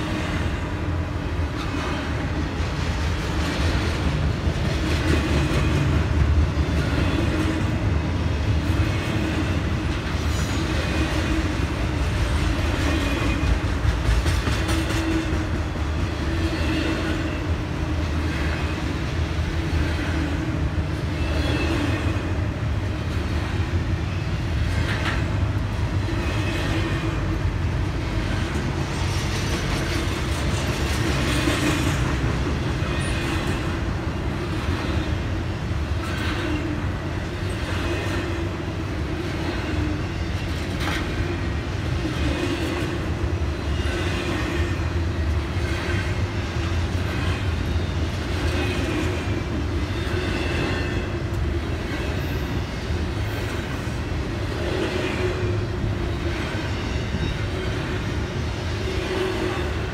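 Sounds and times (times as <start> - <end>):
freight train rumble: 0.0 - 59.9
steel wheels clicking over rail joints: 8.6 - 17.3, 24.5 - 58.2.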